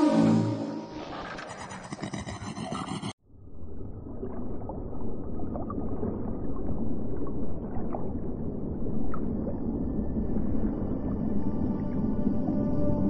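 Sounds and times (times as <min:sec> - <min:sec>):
underwater rumble: 0:03.5 - 0:12.6.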